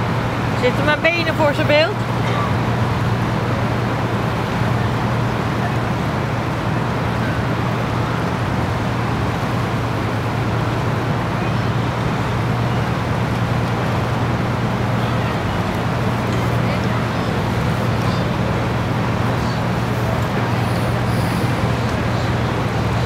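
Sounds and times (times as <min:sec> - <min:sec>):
boat engine droning: 0:00.0 - 0:23.0.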